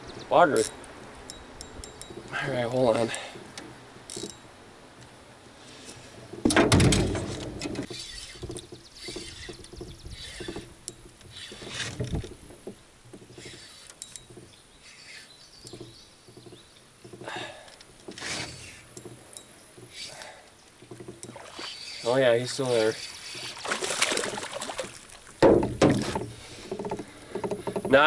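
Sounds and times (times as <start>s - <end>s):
fishing reel cranking: 21.2s - 23.6s.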